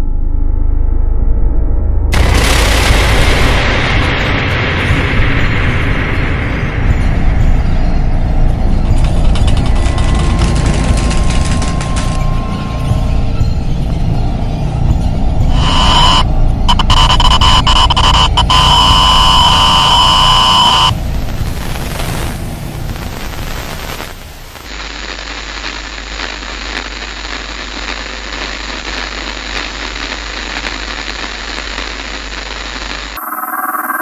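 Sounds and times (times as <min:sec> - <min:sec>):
low hum: 0:00.0 - 0:34.0
loud electronic static: 0:02.1 - 0:07.6, 0:08.8 - 0:14.0, 0:14.9 - 0:34.0
shrill whine: 0:12.1 - 0:21.0.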